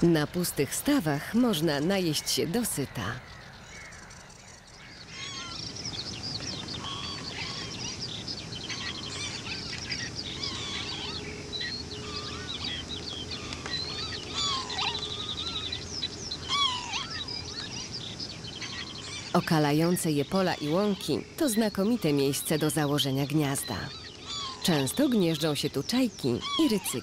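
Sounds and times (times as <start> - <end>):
slurred bird calls: 0.0 - 27.0
bird trill: 1.2 - 27.0
birds whistling and chirping: 3.2 - 27.0.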